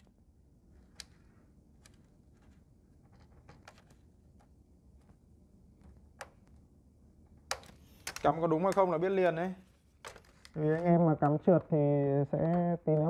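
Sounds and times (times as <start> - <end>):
low room hum: 0.0 - 13.0
connectors clicking into place: 0.8 - 5.2, 7.4 - 8.9.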